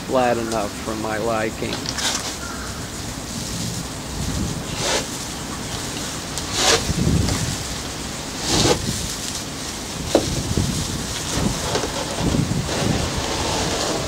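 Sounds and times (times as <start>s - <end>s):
wind rumble on microphone: 2.5s - 14.0s
spatula scraping compound: 4.6s - 5.2s, 6.4s - 7.0s.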